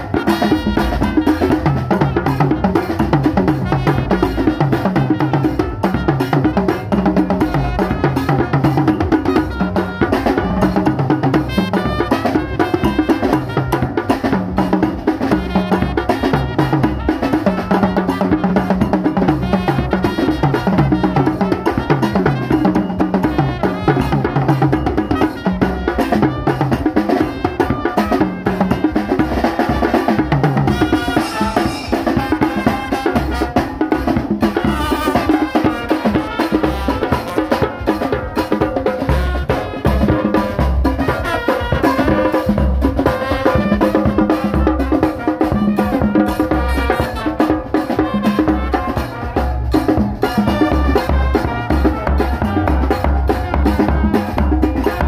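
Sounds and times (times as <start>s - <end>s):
brass band playing: 0.0s - 55.0s.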